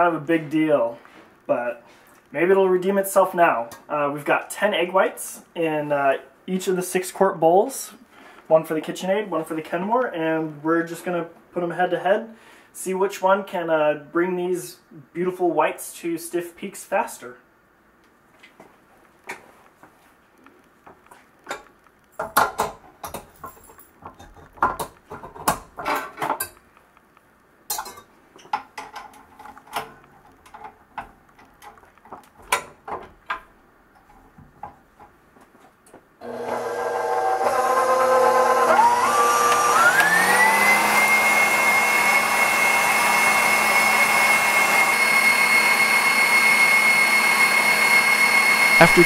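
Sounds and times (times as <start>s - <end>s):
metal clinks and knocks: 22.2s - 26.6s
stand mixer motor whine: 36.2s - 49.0s.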